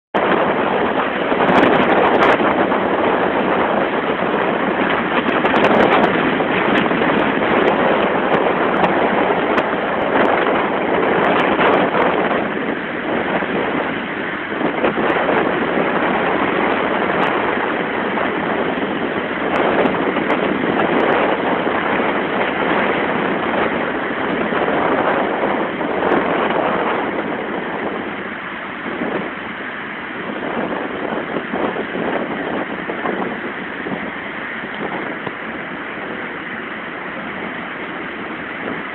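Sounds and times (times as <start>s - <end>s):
surf breaking over rocks: 0.2s - 38.9s.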